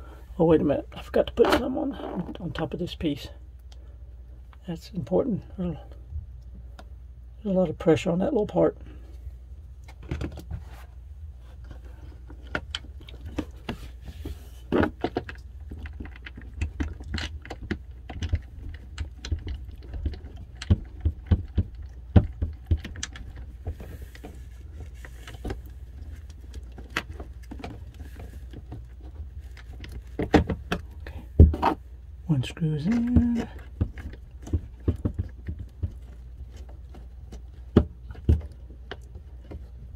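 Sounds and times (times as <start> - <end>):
plastic parts clicking and tapping: 14.7 - 31.8.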